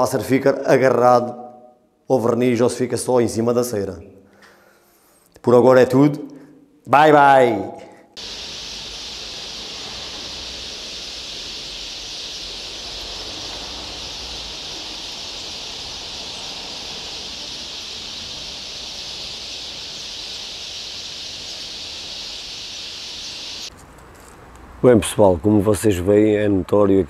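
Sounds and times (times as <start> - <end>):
high-pitched insect buzz: 8.2 - 23.7.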